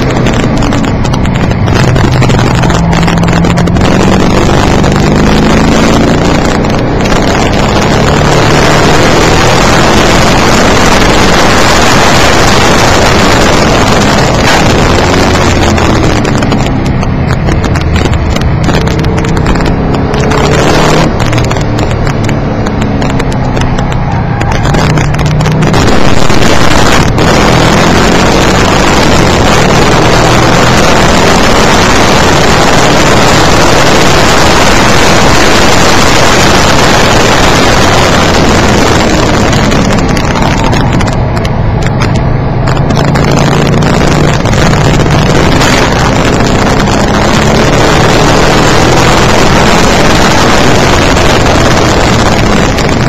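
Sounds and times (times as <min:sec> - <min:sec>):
distorted car engine: 0:00.0 - 0:53.0
road noise: 0:00.0 - 0:53.0.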